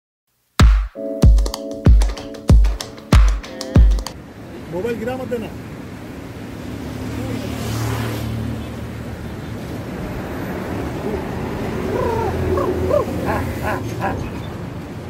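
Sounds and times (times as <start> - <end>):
road traffic rumble: 4.0 - 15.0
vehicle passing: 4.2 - 15.0.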